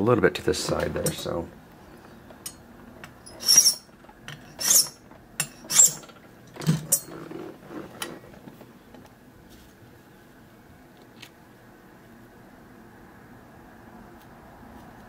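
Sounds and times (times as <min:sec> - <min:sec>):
file rasping on metal key: 0:03.3 - 0:03.9, 0:04.5 - 0:06.0.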